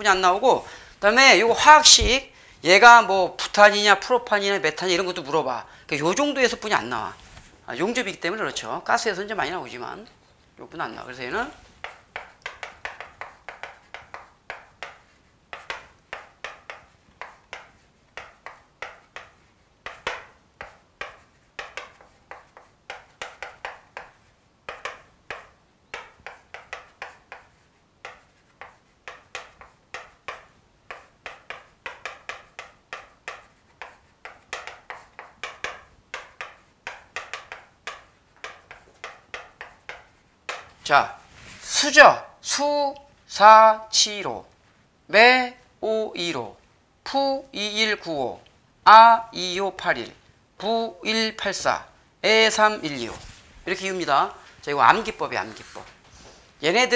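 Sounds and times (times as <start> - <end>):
chalk tapping and scratching on board: 10.9 - 41.9, 52.5 - 56.4.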